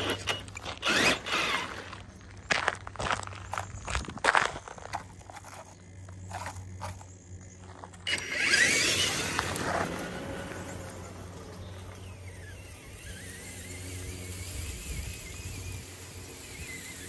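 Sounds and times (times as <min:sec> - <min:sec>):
electric motor whining: 0:00.0 - 0:02.0, 0:07.9 - 0:17.0
tyres rolling over gravel: 0:00.0 - 0:17.0
footsteps crunching on gravel: 0:00.4 - 0:08.2.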